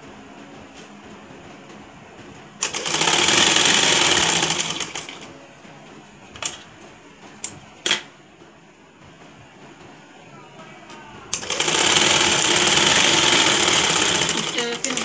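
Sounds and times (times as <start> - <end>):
sewing machine stitching: 2.6 - 5.3, 11.3 - 15.0.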